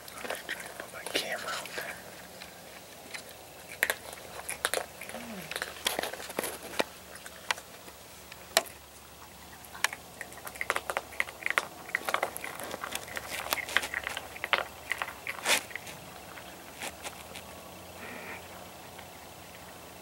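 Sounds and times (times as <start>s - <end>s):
animal crunching cat food: 0.0s - 20.0s.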